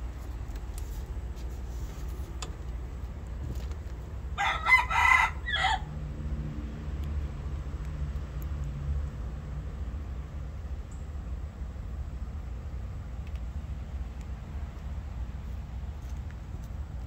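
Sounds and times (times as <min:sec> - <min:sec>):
steady low rumble: 0:00.0 - 0:17.0
rooster crowing: 0:04.4 - 0:06.0.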